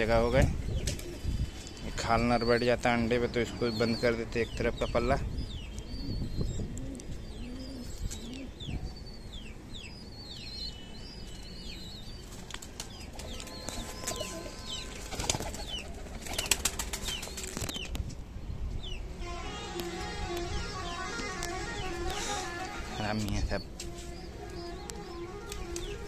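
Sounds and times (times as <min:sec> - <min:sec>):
wings flapping and clatter: 0:00.8 - 0:01.2, 0:12.3 - 0:18.0
pigeon cooing: 0:06.0 - 0:08.7.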